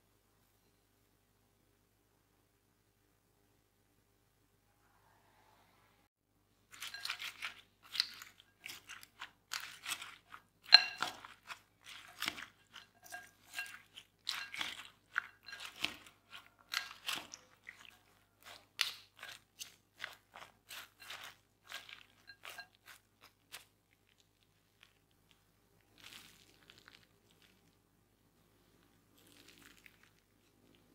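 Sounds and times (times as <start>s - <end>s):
wet rustling and squishing stirring: 6.6s - 27.9s, 28.6s - 30.9s
spoon clinking glass bowl: 6.7s - 23.4s.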